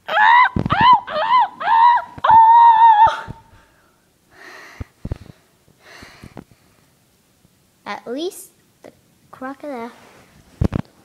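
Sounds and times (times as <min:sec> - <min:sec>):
boy screaming: 0:00.0 - 0:03.4
heavy breaths: 0:03.3 - 0:06.8.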